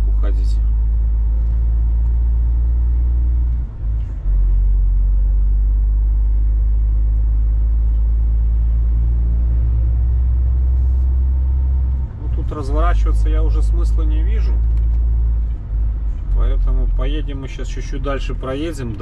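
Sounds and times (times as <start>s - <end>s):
road noise: 0.0s - 19.0s
truck diesel engine drone: 0.0s - 19.0s.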